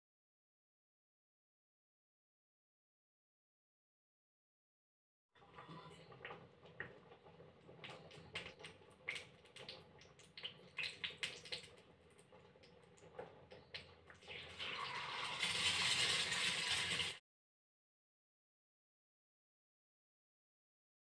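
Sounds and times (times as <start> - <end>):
egg sizzling in hot oil: 5.4 - 17.2
oil popping and ticking: 5.4 - 17.2.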